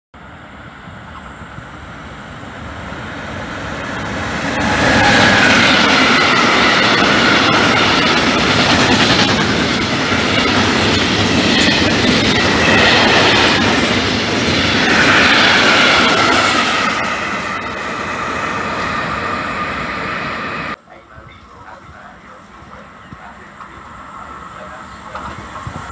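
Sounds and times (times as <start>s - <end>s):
train wheels clattering on rails: 4.0s - 17.1s, 24.6s - 25.9s.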